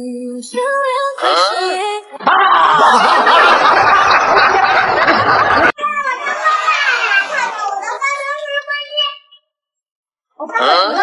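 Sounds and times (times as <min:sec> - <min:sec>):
voices: 0:00.0 - 0:09.5, 0:10.4 - 0:11.0
loud dense laughter: 0:02.2 - 0:07.9.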